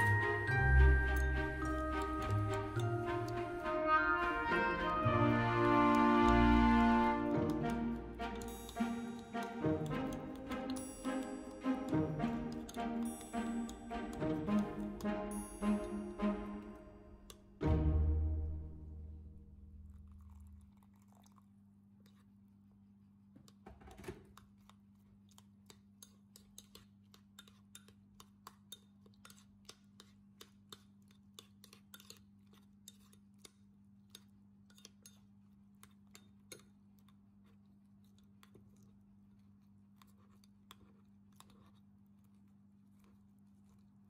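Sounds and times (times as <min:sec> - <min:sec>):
spoon clattering: 0:00.0 - 0:06.0, 0:07.3 - 0:16.4
metal spoon scraping a bowl: 0:00.0 - 0:16.8, 0:24.4 - 0:44.0.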